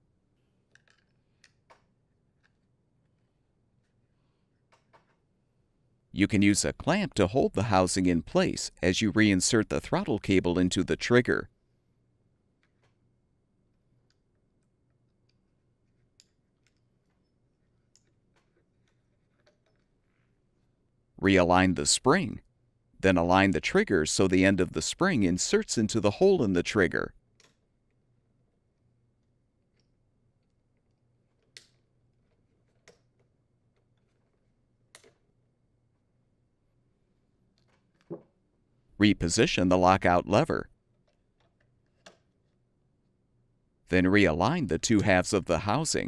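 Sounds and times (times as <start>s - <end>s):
small plastic parts clicking: 0.7s - 3.3s.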